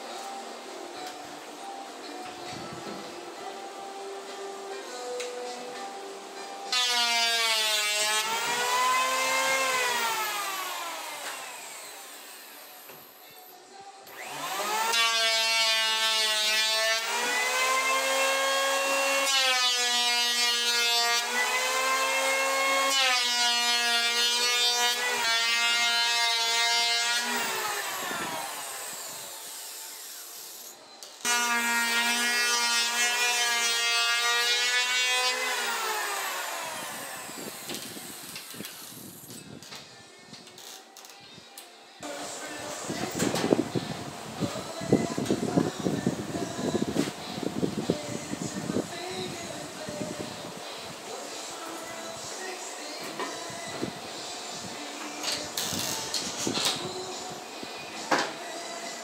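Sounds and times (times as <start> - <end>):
power tool whining on wood: 6.8 - 13.4, 14.1 - 39.4.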